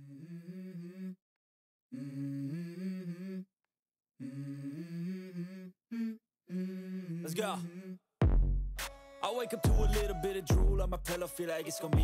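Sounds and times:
person humming a melody: 0:00.0 - 0:01.2, 0:01.9 - 0:03.5, 0:04.2 - 0:08.0.

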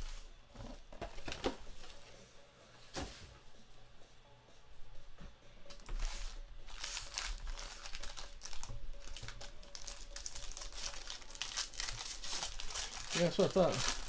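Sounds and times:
foil wrappers crinkling: 0:05.8 - 0:14.0.

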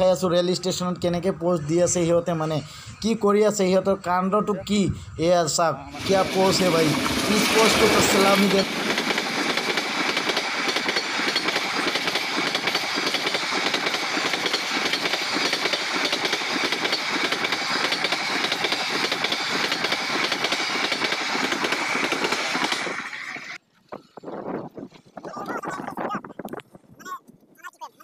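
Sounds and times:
train wheels clattering on rails: 0:06.0 - 0:23.6.

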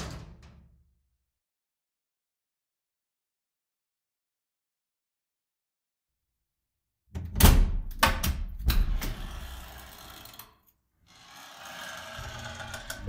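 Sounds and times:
metal door clunking: 0:00.0 - 0:00.9, 0:07.2 - 0:09.4.

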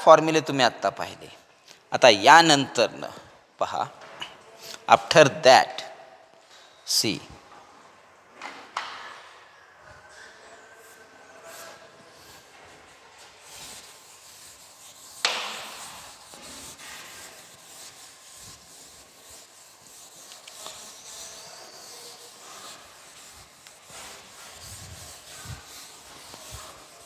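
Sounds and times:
scratchy rubbing on writing surface: 0:10.8 - 0:27.0.

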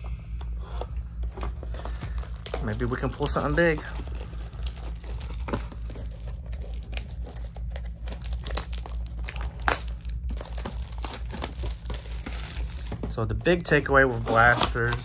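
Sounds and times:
plastic wrapping crinkling and tearing: 0:01.8 - 0:13.0.

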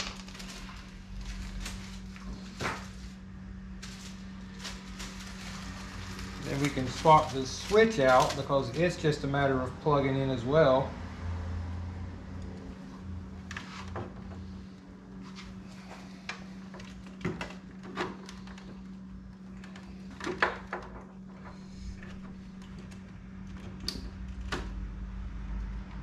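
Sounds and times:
low hum: 0:00.0 - 0:26.0.

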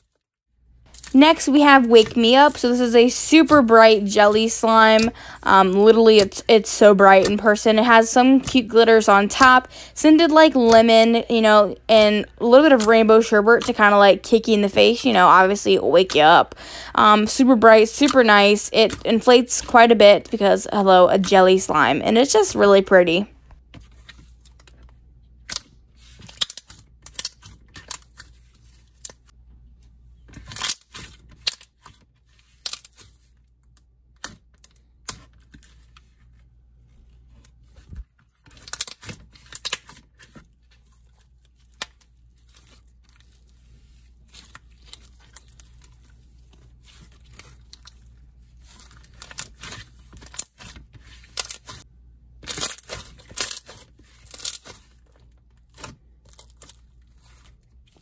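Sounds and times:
slime squishing with sticky clicks: 0:18.8 - 0:19.0, 0:23.6 - 0:29.3, 0:30.2 - 0:36.2, 0:37.3 - 0:58.0.

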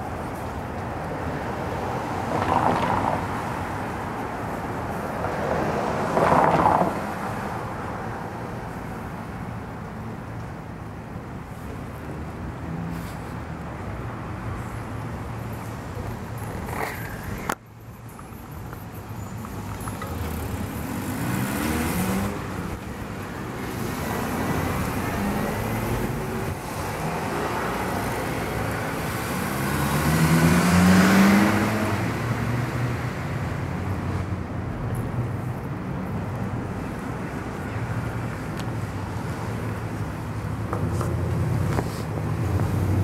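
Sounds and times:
cars driving past: 0:19.1 - 0:43.0.

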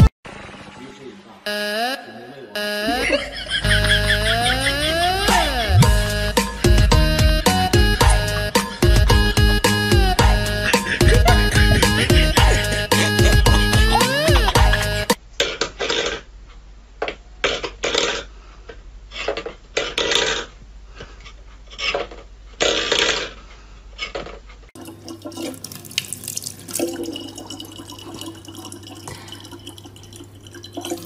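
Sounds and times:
tap water running into bottle: 0:24.8 - 0:31.0.

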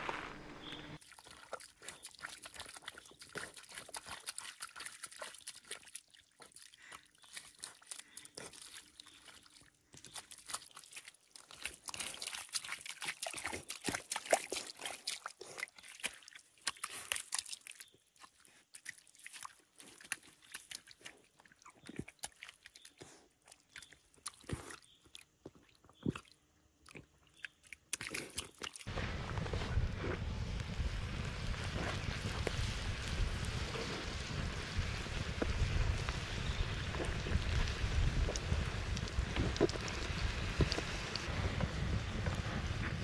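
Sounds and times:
dog digging in wet mud: 0:01.0 - 0:25.3, 0:26.0 - 0:28.9.

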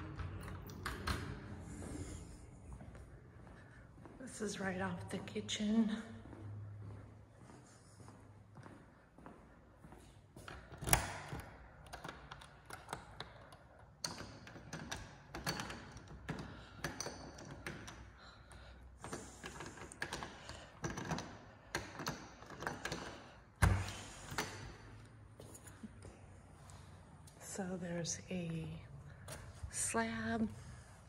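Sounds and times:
key working a door lock: 0:10.5 - 0:18.1.

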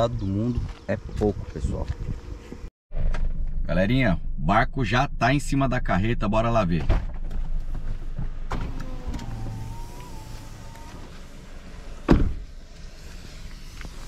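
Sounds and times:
car door slamming: 0:06.8 - 0:12.6
electric window motor whine: 0:08.5 - 0:14.0.

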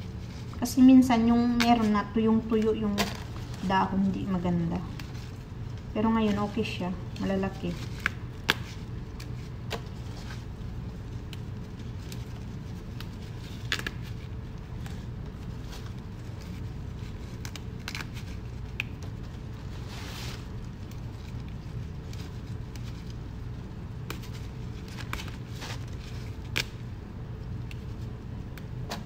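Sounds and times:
leafy rustles: 0:00.0 - 0:26.8
steady low hum: 0:00.0 - 0:29.0
leaves snapping off stems: 0:07.2 - 0:09.9, 0:11.2 - 0:14.2, 0:17.2 - 0:19.2, 0:24.0 - 0:26.8.

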